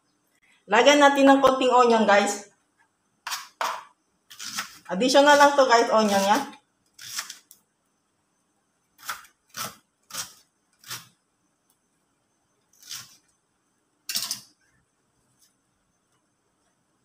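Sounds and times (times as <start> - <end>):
knife cutting onion on plastic board: 3.2 - 7.6, 9.0 - 11.2, 12.7 - 13.2.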